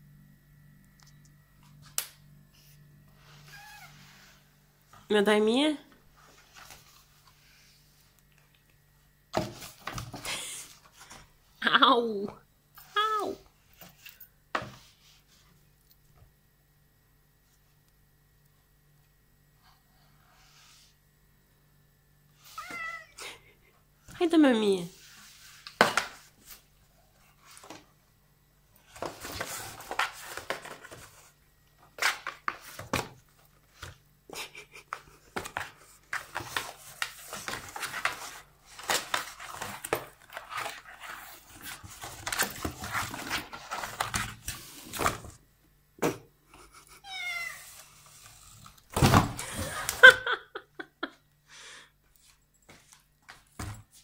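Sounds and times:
cat yowl: 22.5s - 23.2s, 47.0s - 47.8s.

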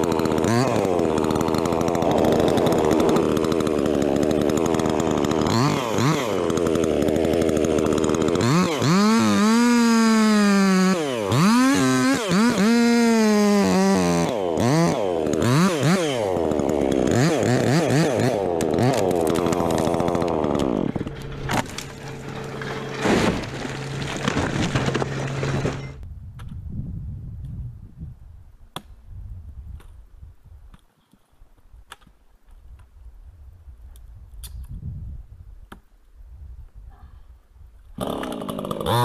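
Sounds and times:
chainsaw engine revving and idling: 0.0s - 26.0s, 38.0s - 39.0s.

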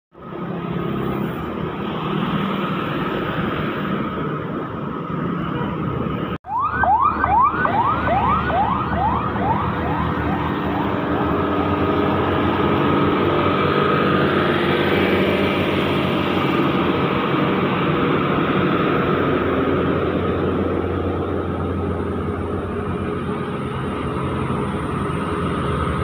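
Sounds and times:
trucks and motorbikes passing: 0.2s - 26.0s
emergency siren whooping: 6.4s - 18.0s.

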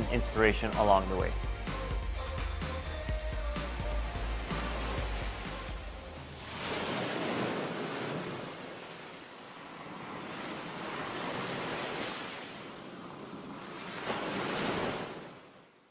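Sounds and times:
waves breaking on a beach: 3.8s - 15.9s.

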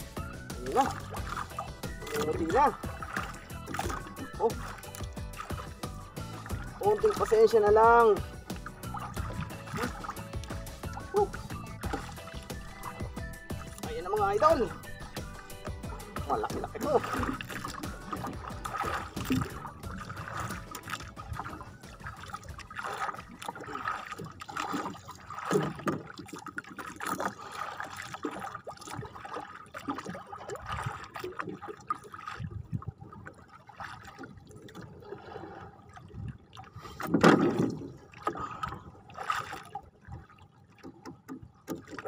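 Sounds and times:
small water splashes: 0.0s - 42.0s
water sloshing against boat: 0.0s - 42.0s
fishing line hauled by hand: 8.0s - 15.5s.

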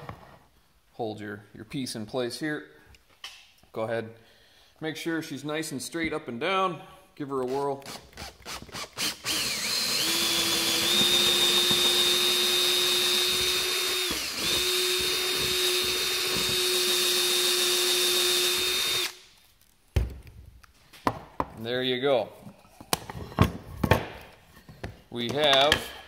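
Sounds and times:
power drill boring into wood: 7.9s - 19.2s.

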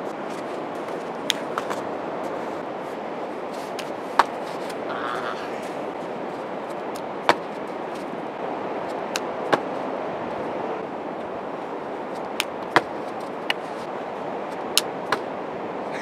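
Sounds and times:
wind: 0.0s - 16.0s
feet landing on sand: 3.6s - 4.8s, 6.9s - 8.2s, 8.9s - 9.9s, 12.2s - 13.7s.

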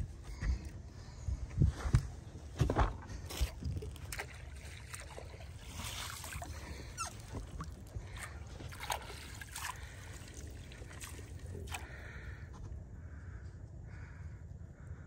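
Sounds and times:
water sloshing around a boat: 0.0s - 12.6s
short sharp splashes: 3.3s - 12.2s.

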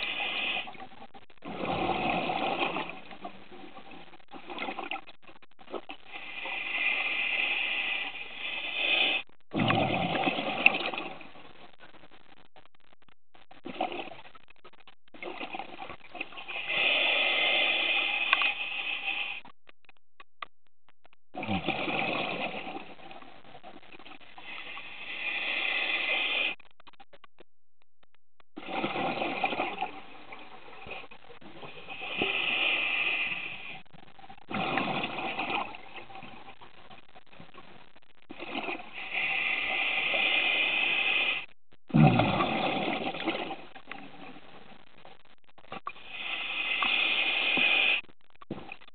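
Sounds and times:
diver breathing through regulator: 6.1s - 9.3s, 16.4s - 19.5s, 24.3s - 26.6s, 31.8s - 33.8s, 38.9s - 41.5s, 46.0s - 48.1s.

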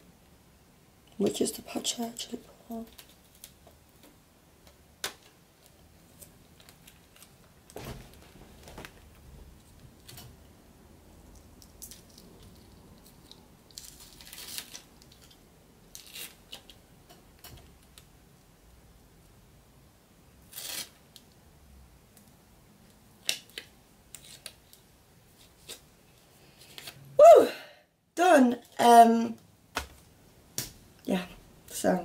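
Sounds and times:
plastic liner crinkling: 2.7s - 4.2s, 5.0s - 10.3s, 11.3s - 16.8s.

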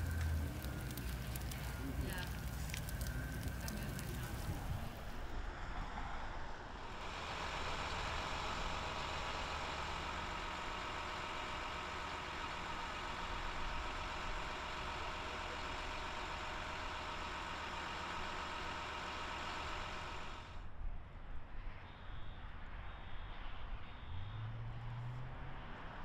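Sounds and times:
engine idling: 0.0s - 5.3s, 7.0s - 20.6s.

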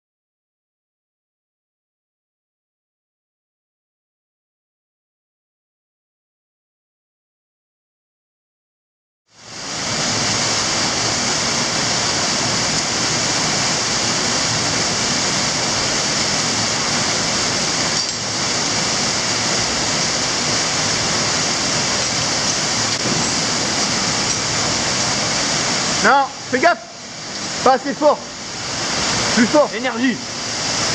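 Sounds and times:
water cascading over rock: 9.3s - 30.9s.

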